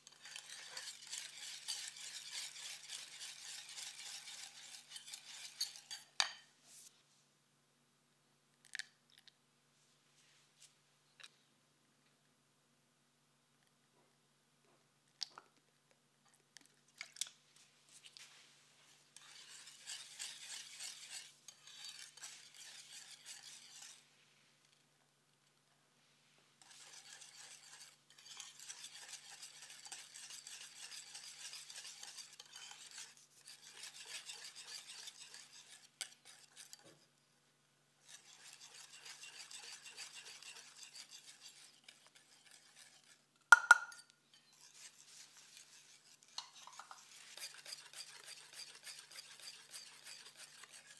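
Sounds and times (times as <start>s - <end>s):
whisk beating batter in glass bowl: 0.0s - 6.4s, 19.2s - 24.0s, 26.6s - 37.0s, 38.0s - 50.9s
whisk clinking against glass bowl: 0.1s - 6.4s, 19.2s - 24.0s, 26.7s - 36.8s, 38.1s - 50.9s.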